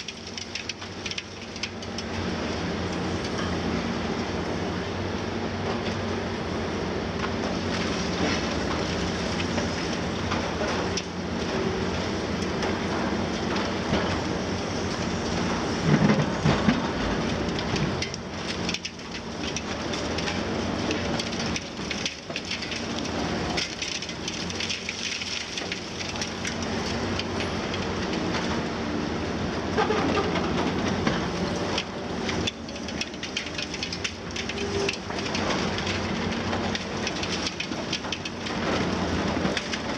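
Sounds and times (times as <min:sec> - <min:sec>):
excavator diesel engines running: 0:00.0 - 0:39.9
concrete crunching and breaking: 0:15.8 - 0:28.6.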